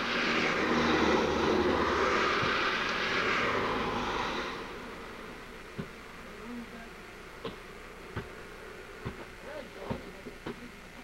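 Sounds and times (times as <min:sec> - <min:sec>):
vehicle passing: 0:00.0 - 0:05.6.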